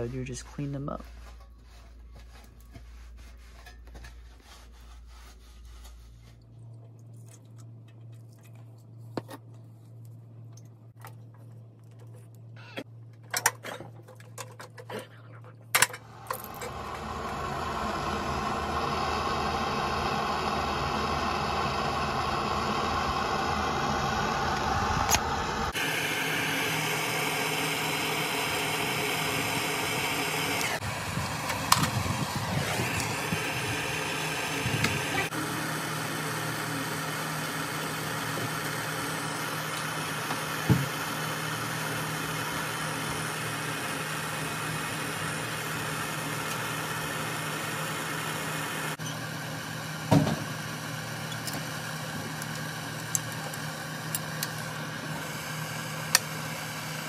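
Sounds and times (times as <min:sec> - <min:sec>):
machine humming: 0:16.0 - 0:57.0.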